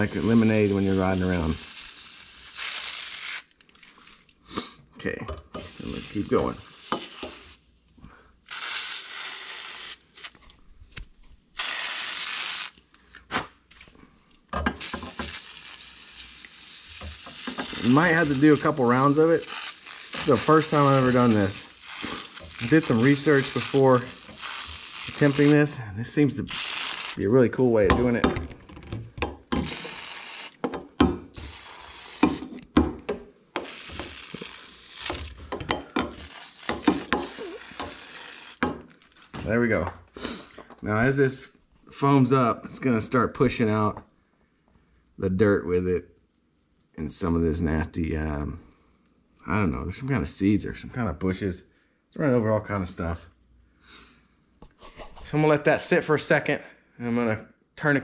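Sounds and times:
crackly handling noise: 3.5 - 4.4, 36.1 - 39.5
aerosol can spraying: 11.6 - 12.8, 14.8 - 25.6, 26.4 - 27.2, 29.6 - 30.6, 31.4 - 32.6, 33.6 - 35.4, 36.1 - 38.6.

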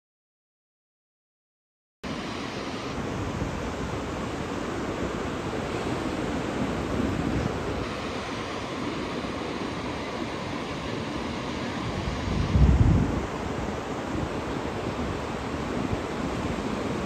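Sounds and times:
surf breaking on beach: 2.1 - 17.0
wind on microphone: 8.8 - 17.0.

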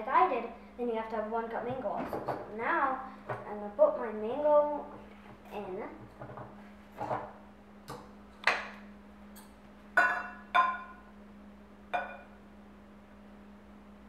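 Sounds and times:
ringing clinks on steel cup: 9.4 - 11.0, 12.0 - 12.4.

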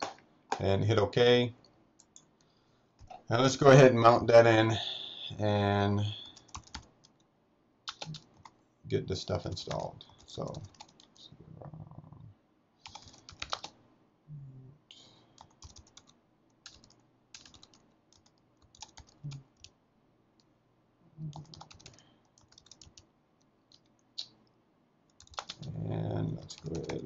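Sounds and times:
computer keyboard typing: 6.2 - 7.2, 7.9 - 8.6, 9.6 - 11.2, 12.8 - 13.8, 15.4 - 19.8, 21.3 - 23.1, 23.7 - 24.0, 25.1 - 27.0.

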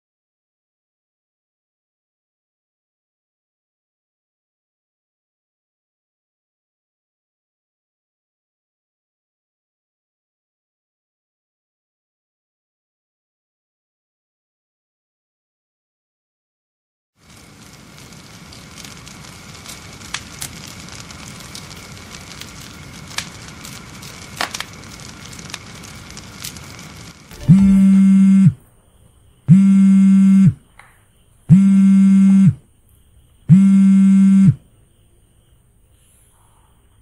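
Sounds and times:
crackling fire with pops: 17.2 - 27.9
phone vibrating: 27.4 - 28.6, 29.5 - 30.6, 31.5 - 32.6, 33.5 - 34.6.

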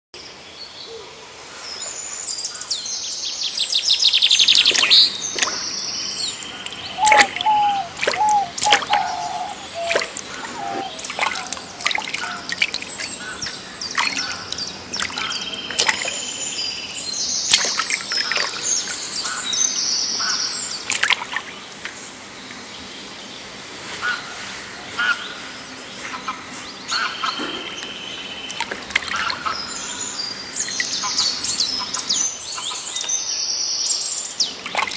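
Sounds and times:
birds chirping and calling: 4.2 - 22.6, 25.9 - 33.3
person wading through water: 4.3 - 19.6, 20.8 - 22.2, 27.6 - 31.8, 34.6 - 34.9
bird trill: 4.4 - 19.5.

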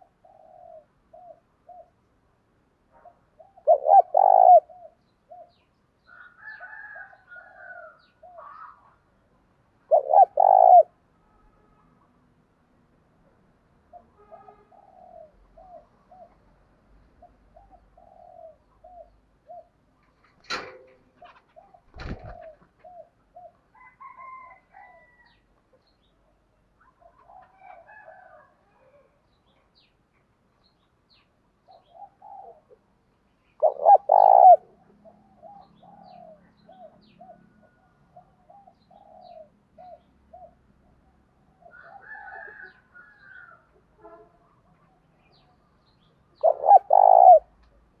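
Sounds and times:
dove cooing: 0.0 - 2.0, 3.0 - 5.6, 9.9 - 10.9, 13.9 - 16.4, 17.2 - 19.8, 21.2 - 25.4, 27.0 - 29.2, 31.7 - 32.8, 33.6 - 40.6, 46.4 - 47.5.

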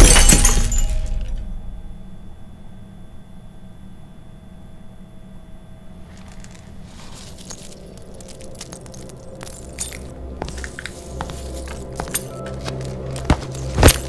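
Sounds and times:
low steady drone: 0.0 - 14.0
teeth and glass shards clinking: 6.2 - 14.0.

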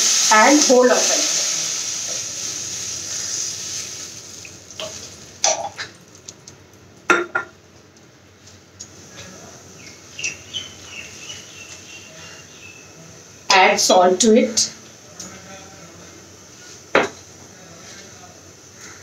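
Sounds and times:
water hissing in hot wok: 0.0 - 6.1.

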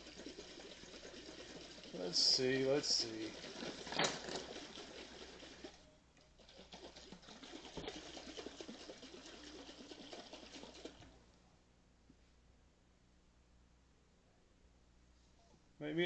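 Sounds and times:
liquid sloshing in glass jar: 0.0 - 11.2.

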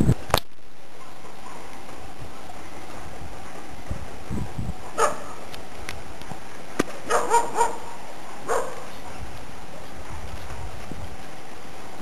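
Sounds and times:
steady hiss: 0.0 - 12.0
dog barking: 5.0 - 5.4, 7.1 - 8.9.

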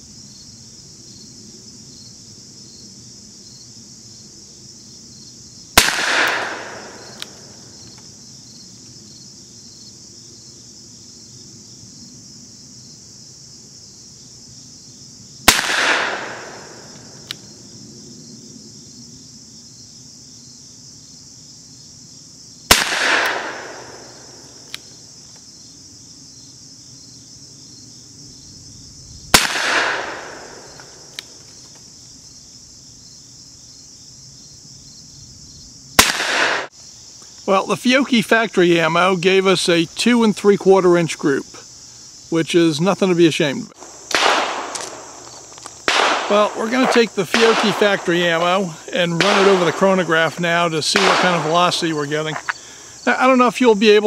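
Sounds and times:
revolver shots echoing: 5.8 - 7.5, 15.5 - 17.2, 45.9 - 48.0.

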